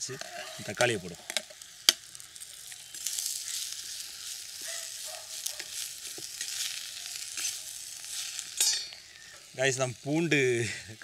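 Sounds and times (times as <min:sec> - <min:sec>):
vegetables sizzling in oil: 0:00.0 - 0:11.0
metal ladle scraping pot: 0:00.2 - 0:01.4.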